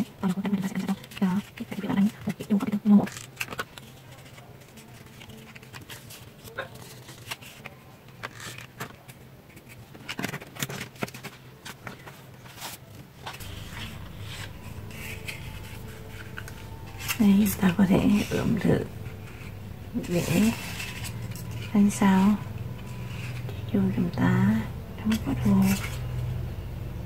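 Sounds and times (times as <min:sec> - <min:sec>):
paper rustling: 0:00.0 - 0:24.0, 0:25.0 - 0:26.4
low steady hum: 0:13.1 - 0:27.0.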